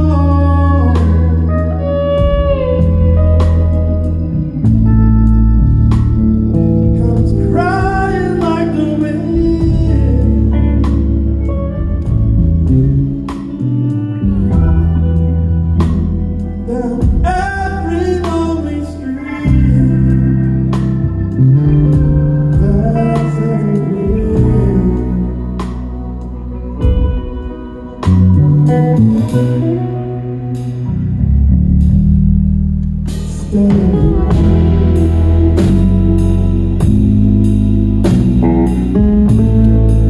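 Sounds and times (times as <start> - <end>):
electric bass notes: 0.0 - 40.0
drum kit with cymbals: 33.0 - 40.0.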